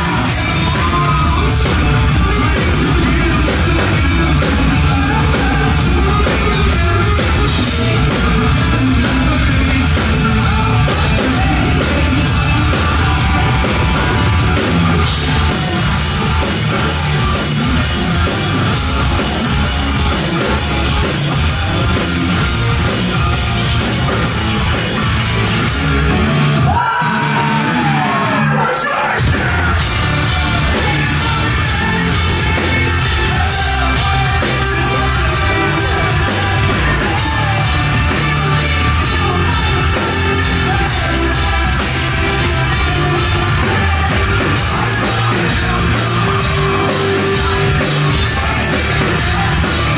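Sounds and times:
heavy rock band playing: 0:00.0 - 0:49.9
yelled and sung vocals: 0:00.0 - 0:49.9.

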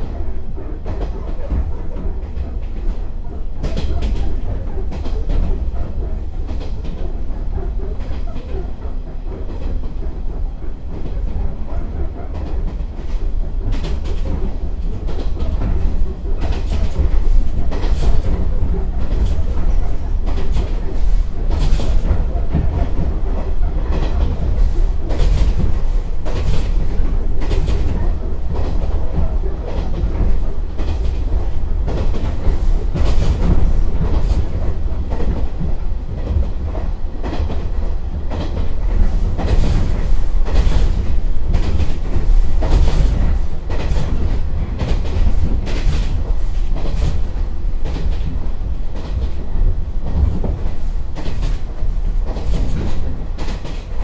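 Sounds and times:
train running at speed: 0:00.0 - 0:54.0.

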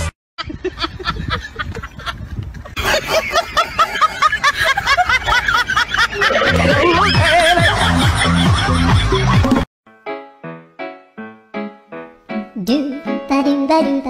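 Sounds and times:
sped-up cartoon laughter: 0:00.4 - 0:09.7
repeating bass line music: 0:06.5 - 0:09.6.

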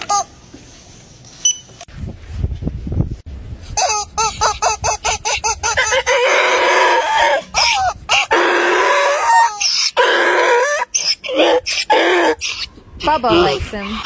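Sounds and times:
rubber chicken toy squeaking: 0:03.8 - 0:06.3.

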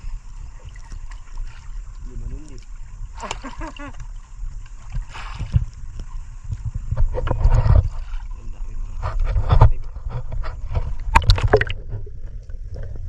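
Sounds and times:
water sloshing around boat: 0:00.0 - 0:13.0
water splashes: 0:00.0 - 0:13.0
wind rumbling on microphone: 0:03.9 - 0:13.0.

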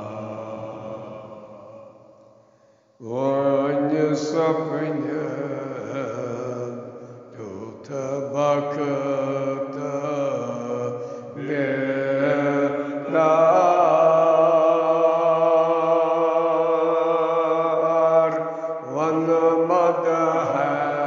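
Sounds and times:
man chanting solo: 0:03.0 - 0:06.8, 0:07.4 - 0:21.0.

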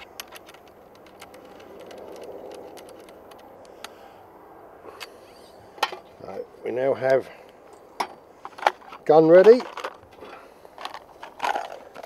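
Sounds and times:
faint metallic ticks and scrapes: 0:00.0 - 0:04.0.

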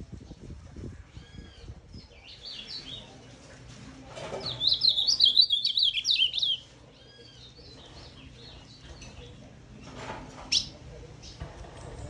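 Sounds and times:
soft bird chirps: 0:04.4 - 0:09.4
bird singing warbled phrase: 0:04.6 - 0:07.8.

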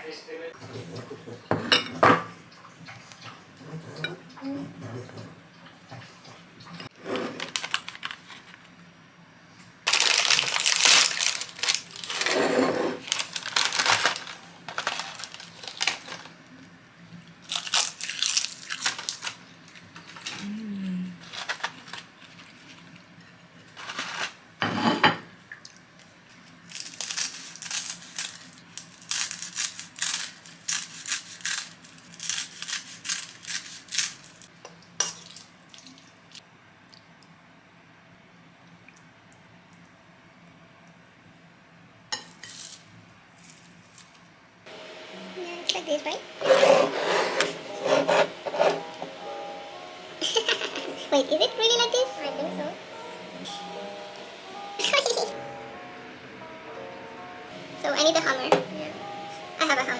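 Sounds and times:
crisp seaweed crackling: 0:07.4 - 0:08.4, 0:09.9 - 0:12.4, 0:13.0 - 0:16.4, 0:17.4 - 0:20.4, 0:21.2 - 0:23.0, 0:26.6 - 0:34.5
plastic tray crinkling: 0:07.4 - 0:08.5, 0:09.9 - 0:12.4, 0:13.0 - 0:16.4, 0:17.5 - 0:19.4, 0:21.2 - 0:22.8, 0:23.8 - 0:24.4.

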